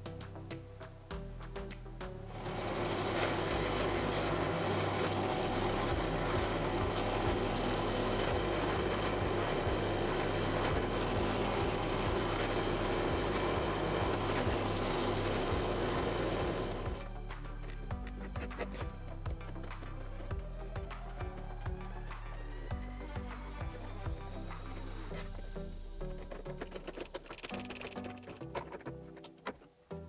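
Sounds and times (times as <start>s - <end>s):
drill press motor humming: 2.3s - 17.1s
drill bit drilling through wood: 2.4s - 17.0s.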